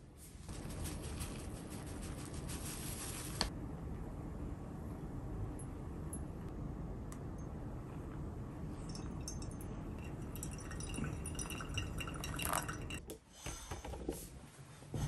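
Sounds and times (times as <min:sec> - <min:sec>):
water dripping: 0:08.9 - 0:13.0.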